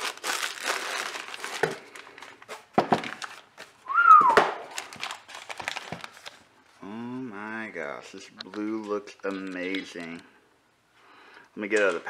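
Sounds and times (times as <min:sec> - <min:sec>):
packaging rubbing: 0:00.0 - 0:03.7
plastic bag crinkling: 0:00.0 - 0:03.8, 0:04.6 - 0:06.5.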